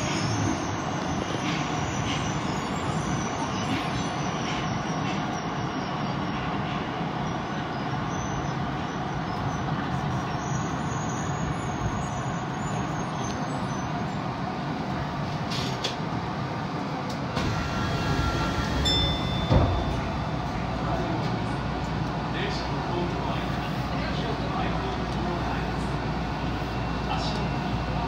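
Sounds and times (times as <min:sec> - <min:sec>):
subway train wheels rumbling: 0:00.0 - 0:28.0.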